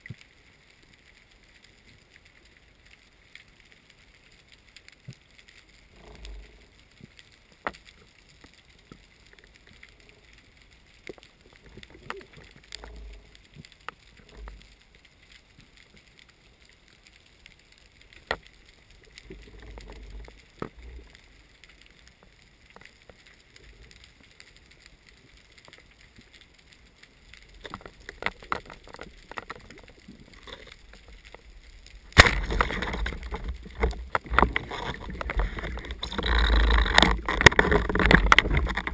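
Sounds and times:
faint steady hiss: 0:00.0 - 0:38.9
low rumbles of water movement: 0:00.0 - 0:38.9
underwater clicks: 0:27.3 - 0:38.9.

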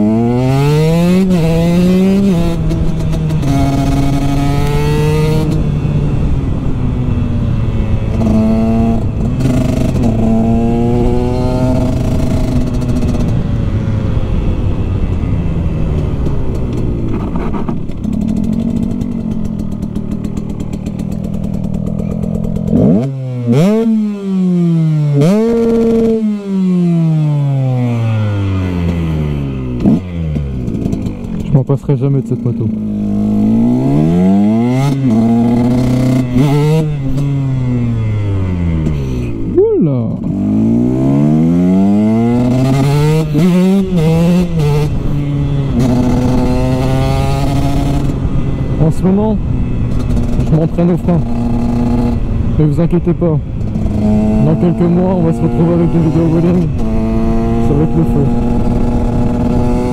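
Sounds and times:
motorcycle accelerating through gears: 0:00.0 - 0:59.9
motorcycle throttle blips: 0:01.2 - 0:59.9.

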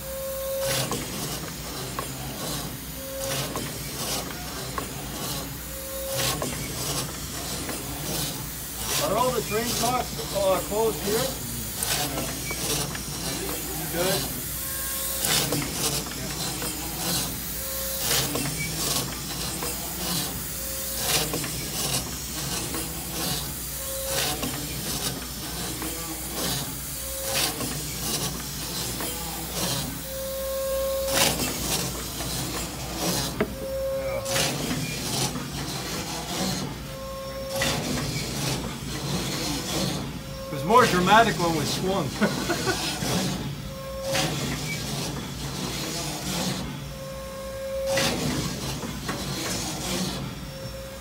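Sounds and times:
short squeak: 0:36.4 - 0:41.5.

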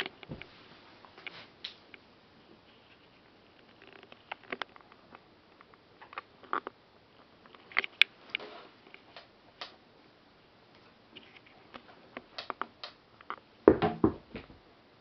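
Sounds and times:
rubber bulb bouncing thumps: 0:13.7 - 0:14.6.

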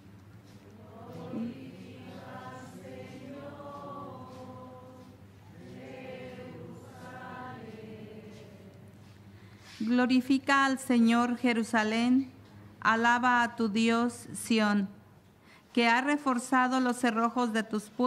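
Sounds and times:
voices softly chanting: 0:00.4 - 0:09.3.

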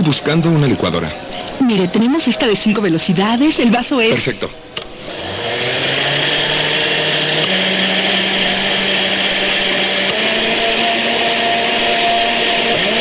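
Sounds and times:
kitchen blender whining: 0:05.0 - 0:13.0.

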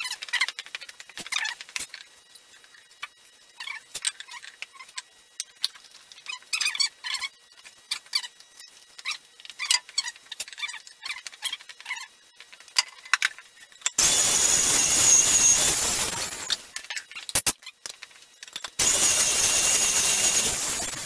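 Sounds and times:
power tool cutting log: 0:14.0 - 0:16.6, 0:18.8 - 0:21.0.

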